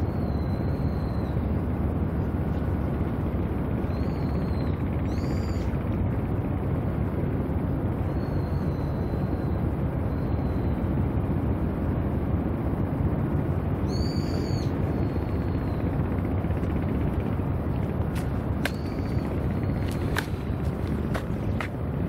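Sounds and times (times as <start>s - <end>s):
wind rumble: 4.8s - 22.0s
high arched whistling call: 13.9s - 15.8s.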